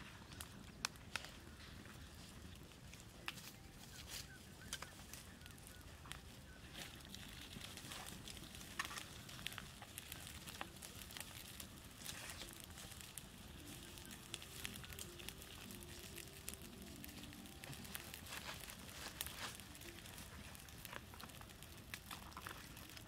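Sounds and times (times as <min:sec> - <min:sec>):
campfire crackling and popping: 0:00.0 - 0:23.0.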